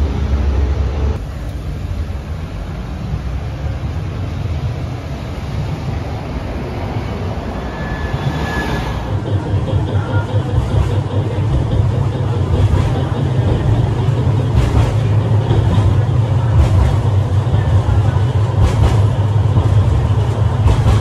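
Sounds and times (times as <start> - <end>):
street traffic rumble: 0.0 - 21.0
tram high whine: 0.0 - 21.0.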